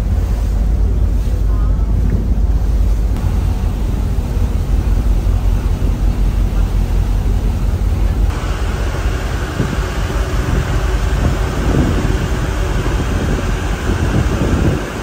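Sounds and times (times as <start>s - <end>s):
churning wake water: 0.0s - 15.0s
low ship rumble: 0.0s - 15.0s
wind rushing: 7.3s - 15.0s.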